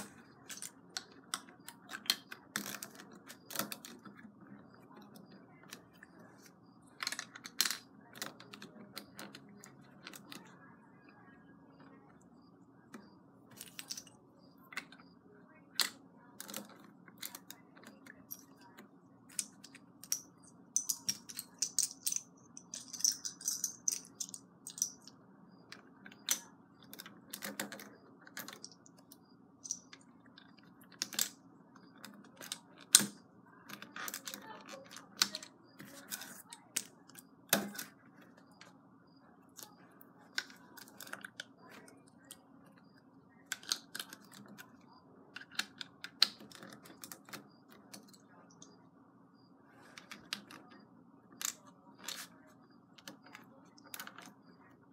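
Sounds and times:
plastic bricks clicking: 0.0s - 4.2s, 13.5s - 14.2s, 19.3s - 25.1s, 25.7s - 38.7s, 43.5s - 44.7s, 45.4s - 48.7s, 51.4s - 52.3s.

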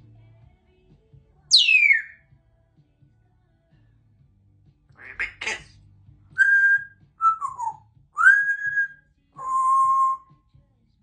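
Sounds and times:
parrot whistling notes: 1.5s - 2.2s, 6.4s - 10.2s.

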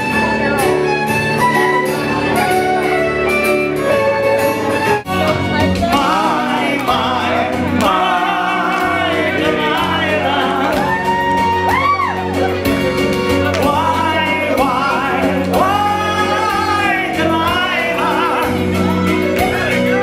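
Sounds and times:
instrumental backing music: 0.0s - 20.0s
man singing into microphone: 5.9s - 11.1s, 13.5s - 19.3s.

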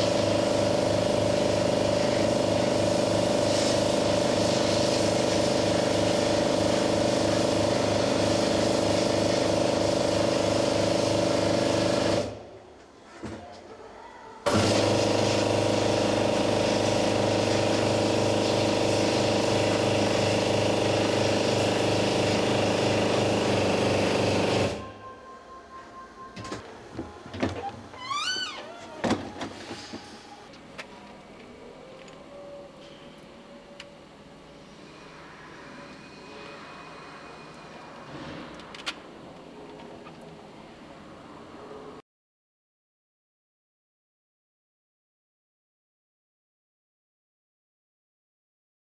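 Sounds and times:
high-pressure water spray: 0.0s - 12.2s, 14.5s - 24.7s
cabinet door squeaking: 27.4s - 29.5s.

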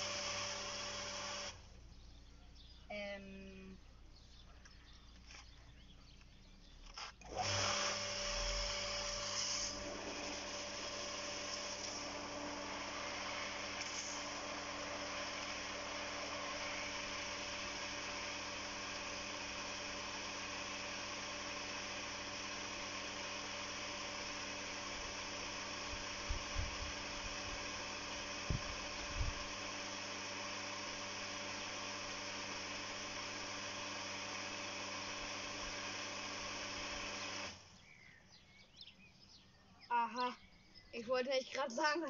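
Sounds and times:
water pump motor humming: 0.0s - 1.7s, 7.2s - 37.9s.

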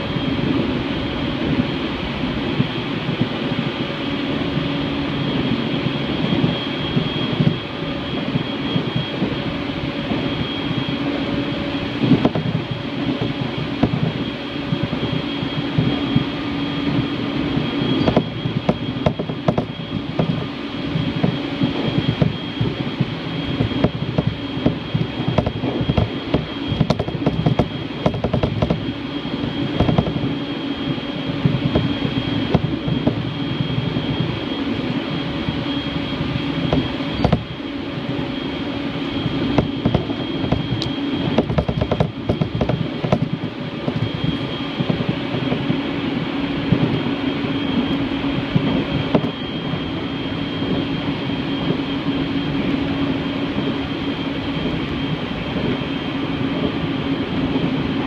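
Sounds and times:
train running noise hum: 0.0s - 58.0s.

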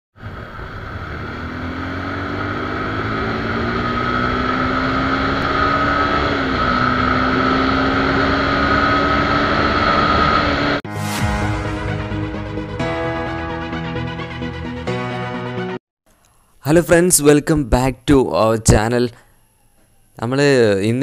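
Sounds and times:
motorcycle engine accelerating: 0.1s - 10.8s.

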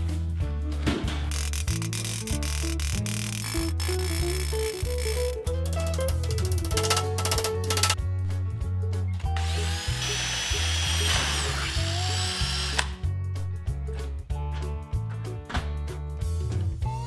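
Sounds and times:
background music: 0.0s - 17.0s
power drill drilling sheet metal: 9.3s - 13.0s.

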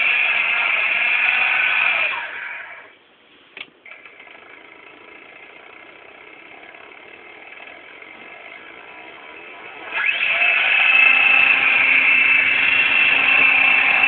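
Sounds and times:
disc drive motor whirring: 3.8s - 14.0s.

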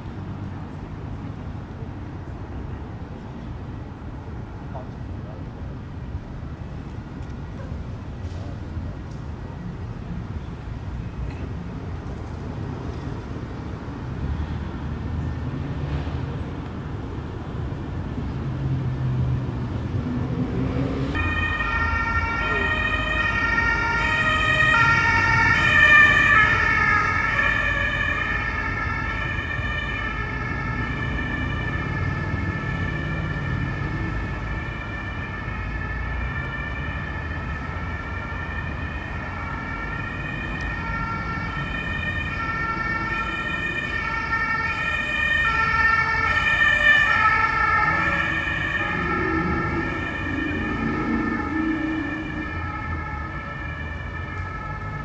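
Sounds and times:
low traffic rumble: 0.0s - 55.0s
two-tone siren: 20.6s - 55.0s.

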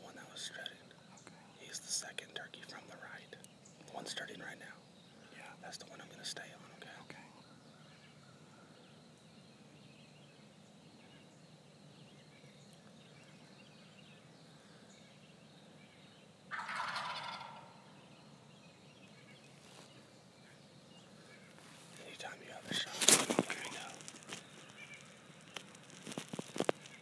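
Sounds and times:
faint background hiss: 0.0s - 27.0s
wild turkey gobbling: 16.5s - 18.0s.

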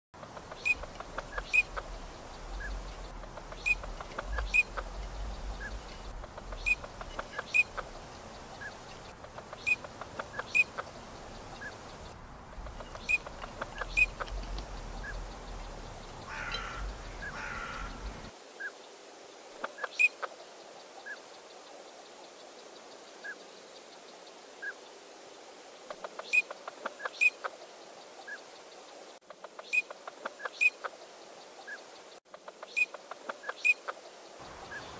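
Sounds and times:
low rumble: 1.8s - 7.1s
duck whistled calls: 3.6s - 4.8s.

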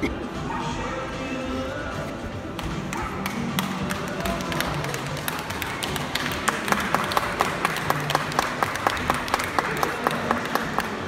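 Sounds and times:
rhythmic clapping: 2.5s - 11.0s.

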